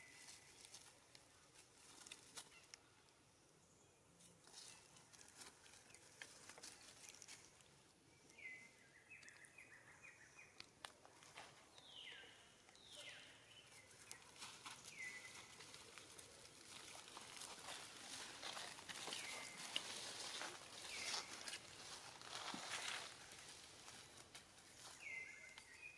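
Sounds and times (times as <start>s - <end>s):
dry leaves crackling: 0.0s - 2.8s, 4.5s - 7.7s, 13.7s - 25.7s
bird chirping: 8.0s - 25.9s.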